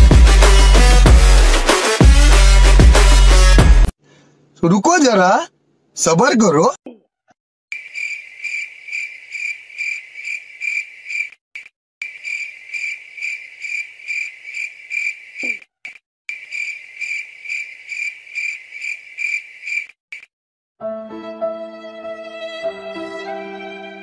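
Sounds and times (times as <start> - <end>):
cricket chirping: 7.7 - 11.3, 12.0 - 15.6, 16.3 - 19.9.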